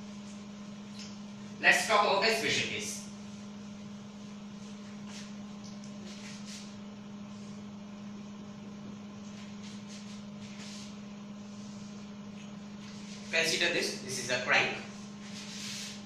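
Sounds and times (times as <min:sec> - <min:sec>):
steady low hum: 0:00.0 - 0:16.0
cloth wiping whiteboard: 0:04.6 - 0:05.3, 0:06.0 - 0:06.7, 0:09.3 - 0:12.1, 0:12.8 - 0:14.1, 0:14.7 - 0:16.0
marker drawing on whiteboard: 0:14.9 - 0:16.0.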